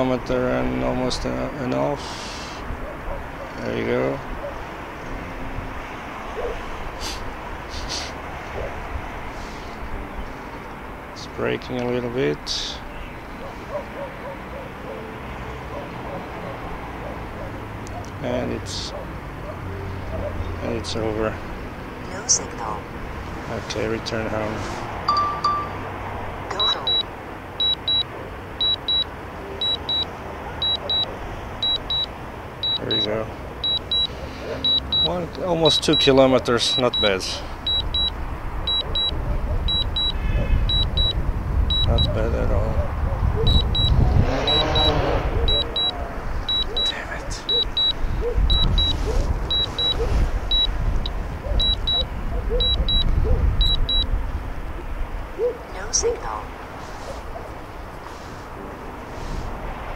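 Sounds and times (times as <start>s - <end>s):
high double beep alarm: 26.5s - 35.1s, 36.7s - 42.1s, 43.5s - 46.9s, 47.5s - 50.8s, 51.6s - 54.1s.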